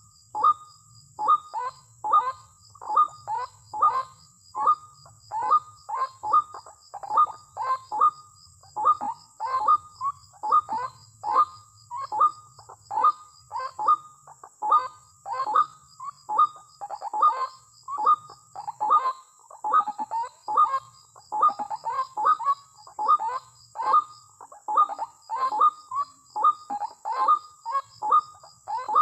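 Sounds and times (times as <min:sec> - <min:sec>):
bird calling: 0:08.8 - 0:29.0.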